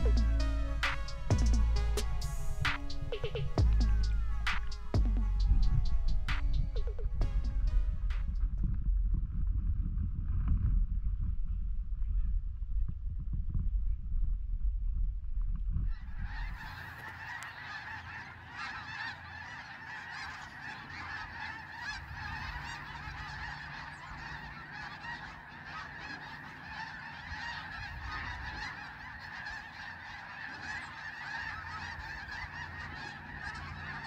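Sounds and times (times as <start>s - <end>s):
geese honking: 0.0s - 8.4s, 15.9s - 34.0s.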